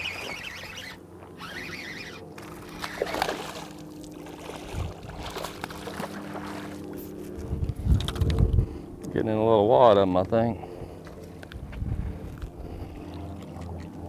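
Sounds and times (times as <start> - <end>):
steady low hum: 0.0 - 14.0
fish splashing at water surface: 2.4 - 6.9.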